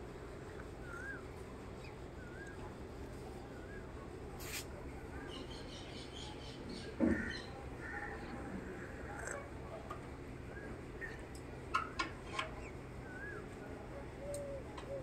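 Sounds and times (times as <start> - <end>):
low background hum: 0.0 - 15.0
short rustle: 4.4 - 4.7.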